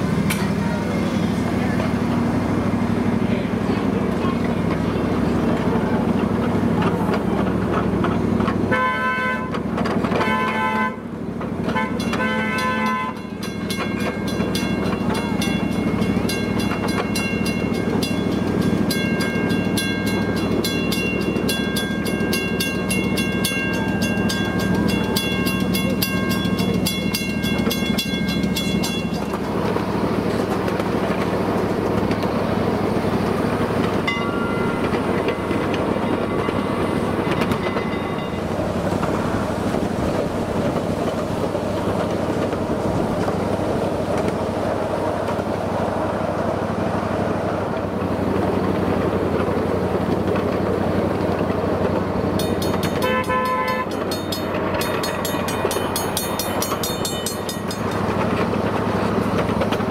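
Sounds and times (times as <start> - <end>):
train running noise: 0.0 - 59.9
miniature train horn blasts: 8.7 - 13.4, 52.6 - 54.4
train bell ringing: 11.8 - 30.4, 33.9 - 39.0, 52.2 - 59.5.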